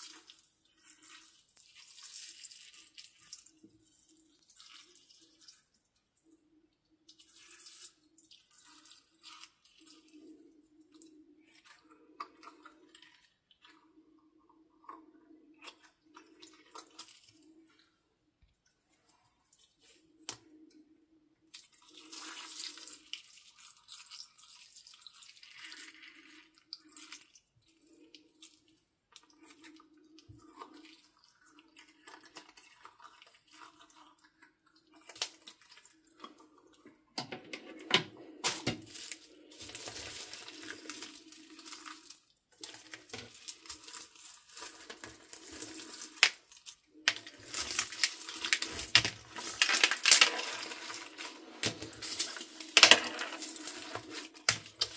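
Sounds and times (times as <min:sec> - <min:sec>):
slime squishing and crackling: 0:38.3 - 0:54.9.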